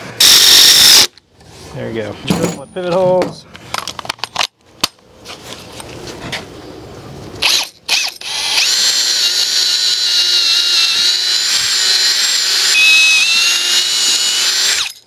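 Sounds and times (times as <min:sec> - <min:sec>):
power drill whining: 0:00.2 - 0:01.1, 0:07.4 - 0:15.0.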